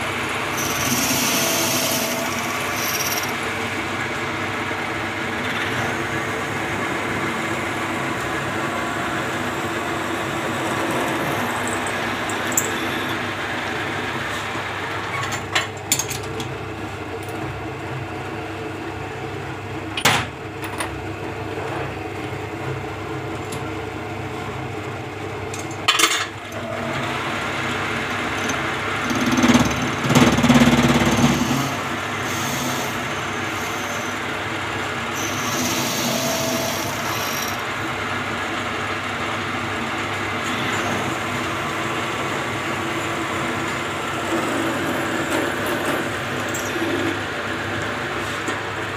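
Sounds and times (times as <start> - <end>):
metal lathe humming: 0.0 - 15.2, 26.5 - 48.9.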